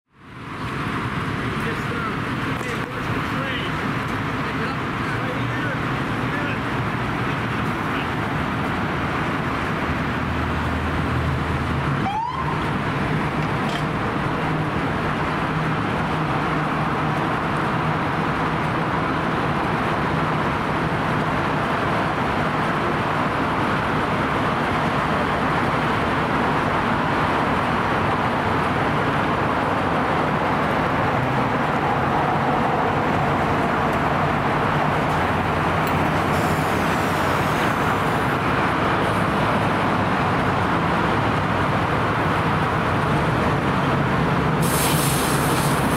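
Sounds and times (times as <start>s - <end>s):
diesel engine hum: 0.1s - 45.9s
road traffic roar: 0.1s - 45.9s.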